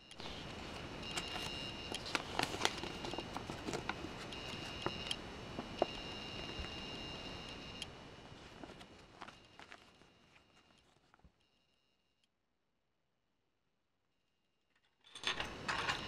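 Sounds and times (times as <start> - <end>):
high steady whine: 0.0 - 11.0
paper leaflet crinkling: 0.2 - 11.4.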